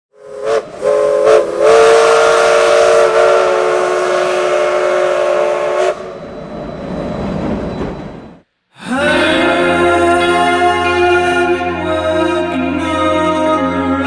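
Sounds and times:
locomotive chime whistle: 0:00.2 - 0:06.6.

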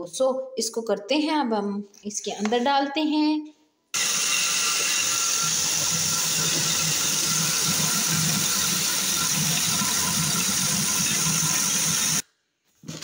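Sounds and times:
food processor grinding: 0:04.0 - 0:12.2.

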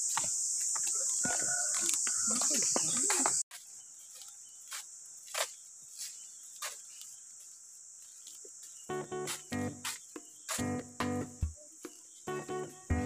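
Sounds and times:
footsteps on paved path: 0:00.0 - 0:13.0
insects buzzing: 0:00.0 - 0:13.0
plucked guitar: 0:08.9 - 0:09.8, 0:10.6 - 0:11.5, 0:12.3 - 0:13.0.

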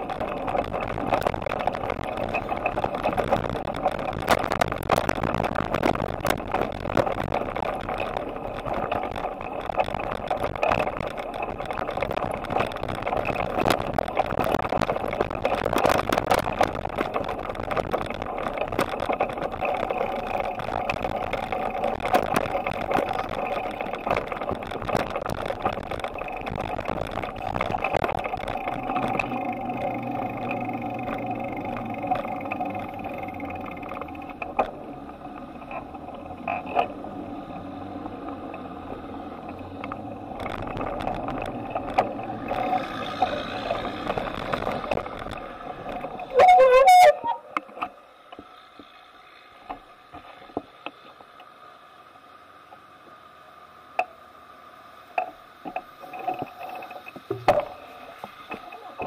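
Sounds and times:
small rattling clicks: 0:00.0 - 0:37.2
bicycle tyres and wind rushing: 0:00.0 - 0:59.0.

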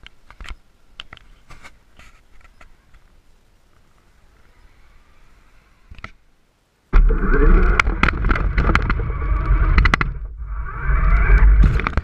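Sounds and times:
electric motor whirring: 0:07.0 - 0:12.0.

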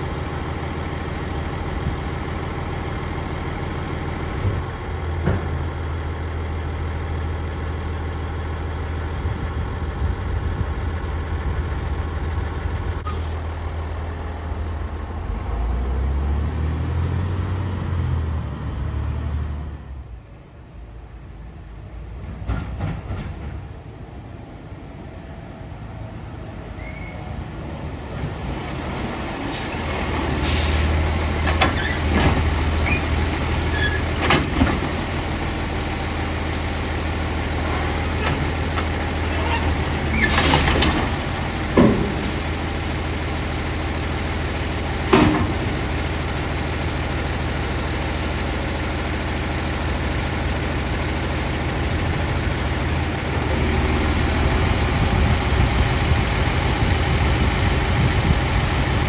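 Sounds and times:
garbage truck engine droning: 0:00.0 - 0:59.0
bangs and clunks of cart: 0:22.2 - 0:23.8, 0:33.9 - 0:35.0, 0:38.2 - 0:42.2, 0:45.1 - 0:45.8
air brake hiss: 0:29.3 - 0:31.0.

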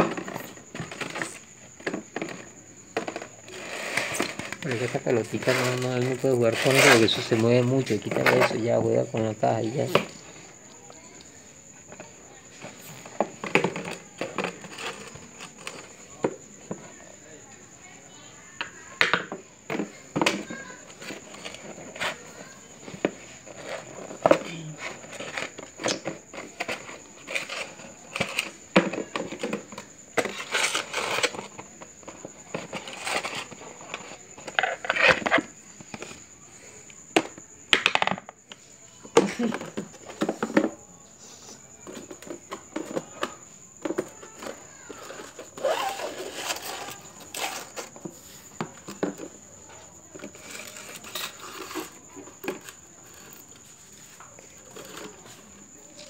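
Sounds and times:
carton scraping: 0:00.0 - 0:10.2, 0:11.9 - 0:16.2, 0:19.8 - 0:36.3, 0:41.9 - 0:49.5, 0:50.1 - 0:55.8.

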